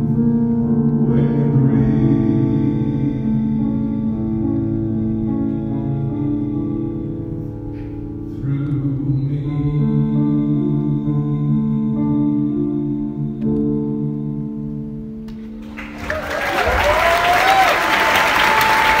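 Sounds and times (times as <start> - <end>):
audience applause and cheering: 15.6 - 19.0
whoops: 15.8 - 19.0.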